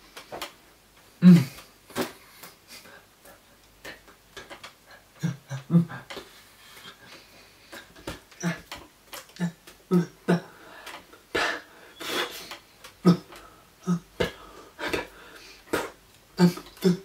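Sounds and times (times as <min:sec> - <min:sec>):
person grunting: 0:01.2 - 0:01.6, 0:05.2 - 0:06.2, 0:08.4 - 0:10.6, 0:13.0 - 0:15.1, 0:15.7 - 0:17.0.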